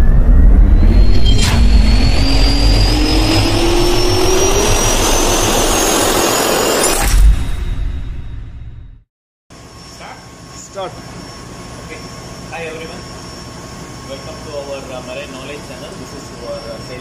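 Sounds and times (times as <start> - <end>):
jet engine spooling up: 0.0 - 7.3
sharp hit: 0.0 - 9.0.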